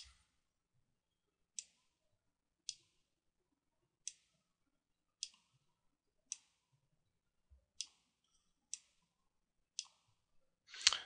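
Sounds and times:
computer mouse clicking: 0.0 - 0.2, 5.2 - 5.5, 9.8 - 10.1.

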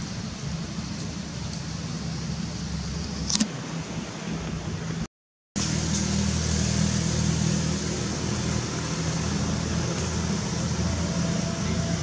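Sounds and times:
engine humming: 0.0 - 12.0.

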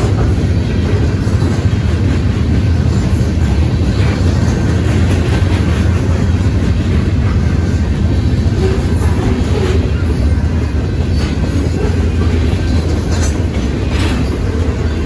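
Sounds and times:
train wheels rumbling on rail: 0.0 - 15.0
wheels clicking over rail joints: 0.0 - 15.0.

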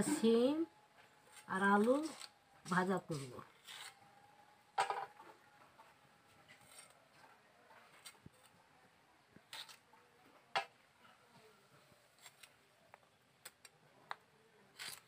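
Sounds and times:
knife slicing bean pods: 1.3 - 4.0, 9.4 - 9.9, 12.1 - 12.6, 14.7 - 15.0.

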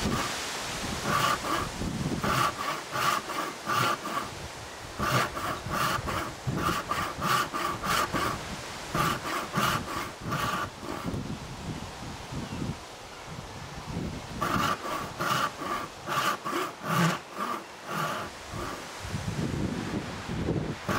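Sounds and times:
hand saw cutting wood: 0.0 - 4.4, 5.0 - 11.2, 14.4 - 18.9.

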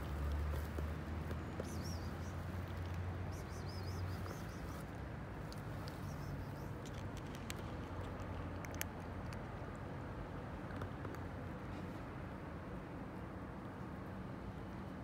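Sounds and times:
cat crunching dry kibble: 6.6 - 9.8.

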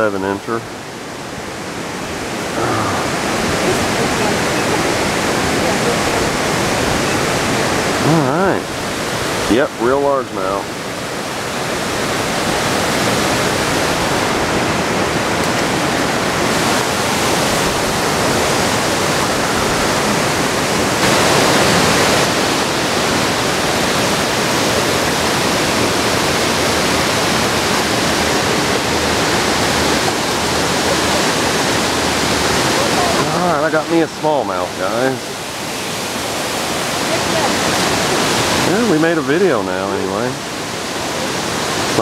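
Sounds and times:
creek water rushing: 0.0 - 42.0.

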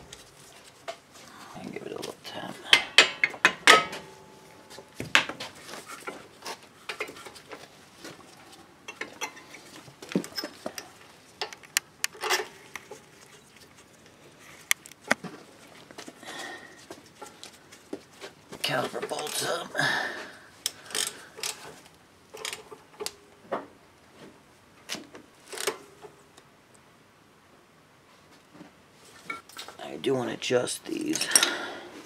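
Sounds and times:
metallic clinks of brake parts: 31.1 - 31.6.

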